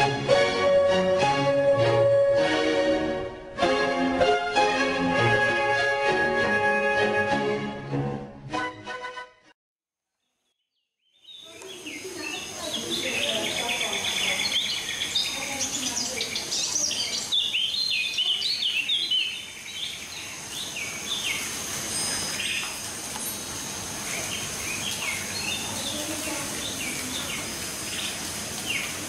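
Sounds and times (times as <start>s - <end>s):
birds chirping: 10.4s - 29.0s.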